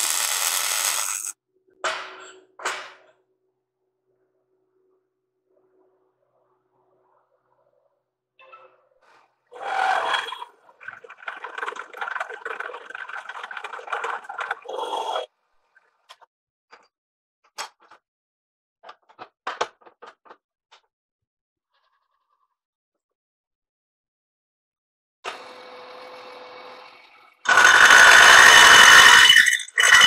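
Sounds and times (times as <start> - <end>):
end mill cutting steel: 0.0 - 1.3, 25.3 - 30.0.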